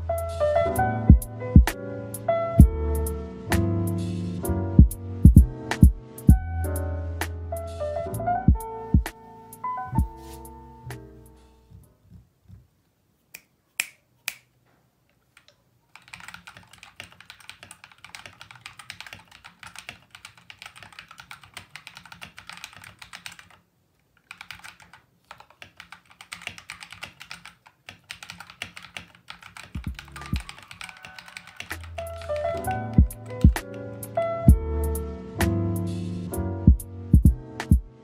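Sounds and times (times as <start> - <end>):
mechanical keyboard typing: 15.3 - 23.6, 24.2 - 33.9.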